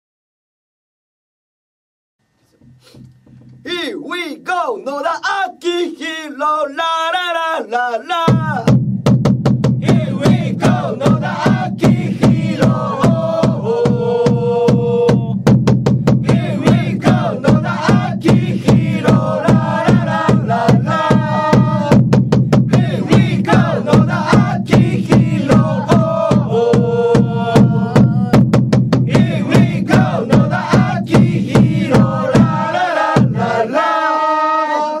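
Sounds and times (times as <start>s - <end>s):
steady drumbeat: 8.1s - 33.9s
crowd chanting: 9.8s - 15.3s, 16.2s - 22.0s, 22.7s - 28.4s, 29.1s - 35.0s.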